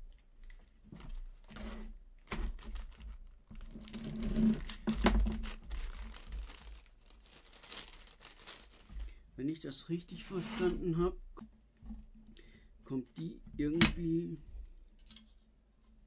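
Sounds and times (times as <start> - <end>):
plastic bag crinkling: 1.3 - 9.3.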